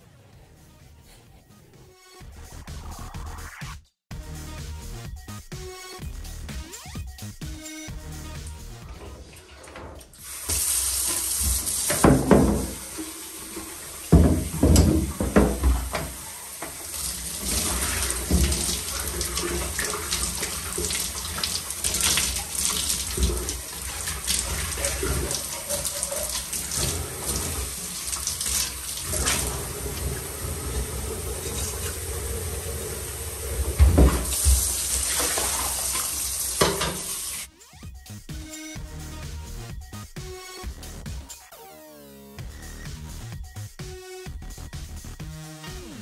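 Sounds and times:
shower water splashing into tub: 8.4 - 37.5.

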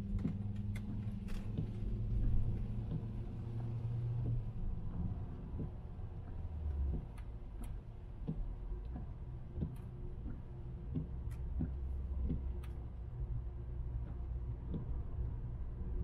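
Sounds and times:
car engine and road drone: 0.0 - 16.0
light ticks and clicks: 0.1 - 12.9.

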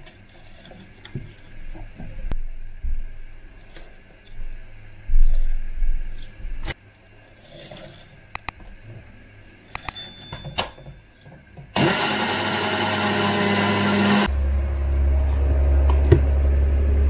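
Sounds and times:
stick blender motor running: 11.8 - 14.3.

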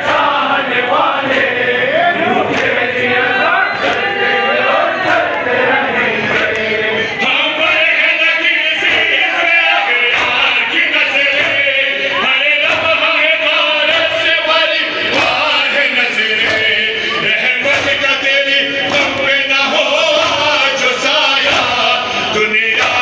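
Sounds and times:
men chanting in chorus: 0.0 - 23.0.

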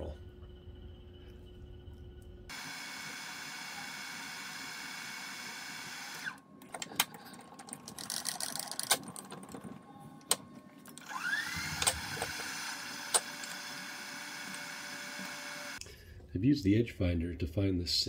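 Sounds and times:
milling machine spindle motor: 2.5 - 6.4, 11.0 - 15.8.

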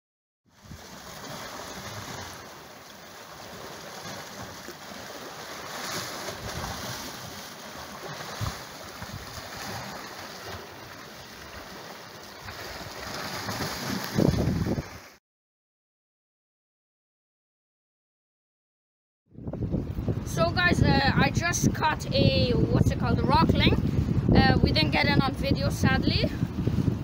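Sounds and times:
waves breaking against rocks: 0.6 - 15.2
wind buffeting microphone: 8.1 - 10.0, 12.4 - 15.0, 19.3 - 27.0.

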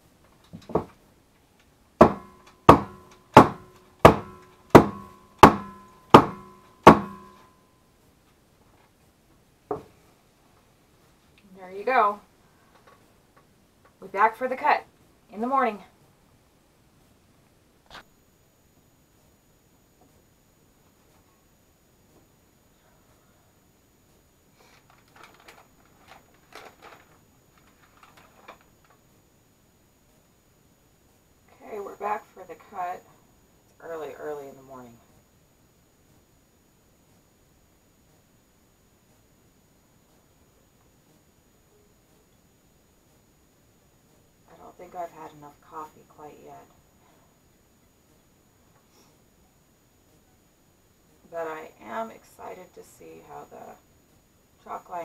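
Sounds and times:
wooden mold knocking on surface: 2.0 - 7.3
paper rustling and crinkling: 24.6 - 29.0.

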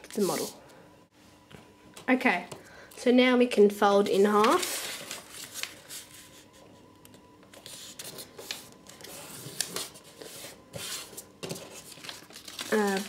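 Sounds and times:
paper rustling and scraping: 0.0 - 0.6, 4.0 - 6.7, 7.5 - 13.0.

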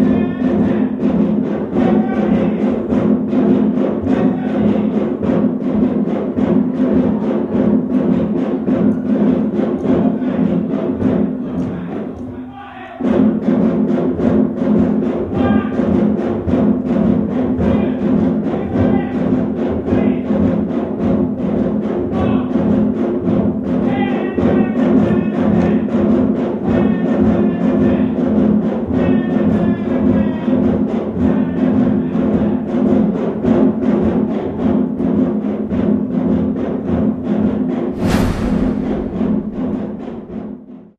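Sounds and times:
hand drums playing rhythm: 0.0 - 12.0.

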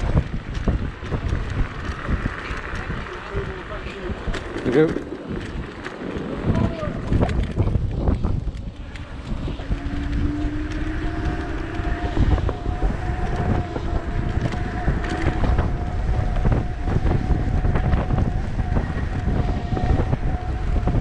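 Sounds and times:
wind buffeting microphone: 0.0 - 21.0
electric motor whine: 5.4 - 21.0.

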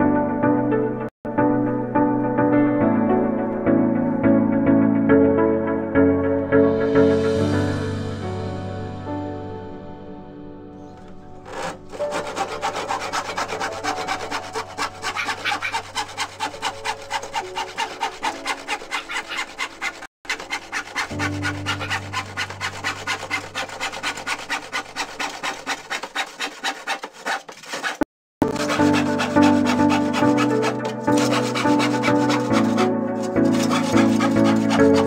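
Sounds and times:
handsaw cutting plywood: 11.0 - 35.0.

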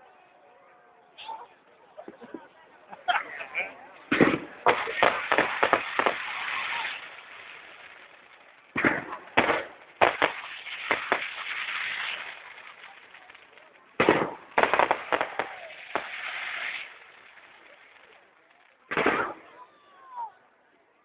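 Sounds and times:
crackling hiss of fireworks: 0.0 - 20.8
firework shells bursting: 4.1 - 17.0.

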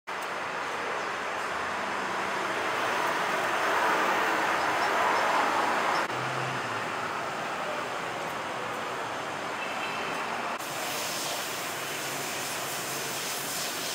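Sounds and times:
passing cars and scooters: 0.1 - 10.7.

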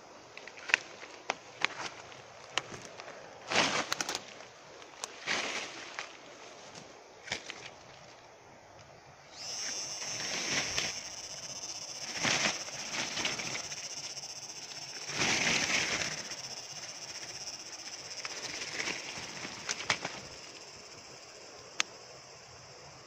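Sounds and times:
leaves and branches rustling: 0.0 - 21.8
high-pitched drone: 9.3 - 19.8.

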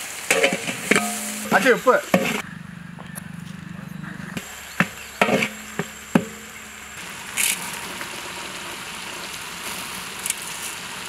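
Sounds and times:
vegetables sizzling in oil: 0.0 - 2.4, 4.4 - 11.0
metal ladle scraping a pot: 0.3 - 2.4, 4.8 - 6.8.

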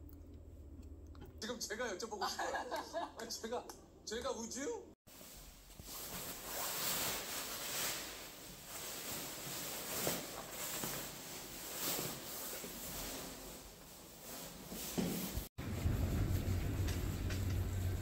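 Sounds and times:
padded jacket fabric rustling: 5.1 - 15.5.

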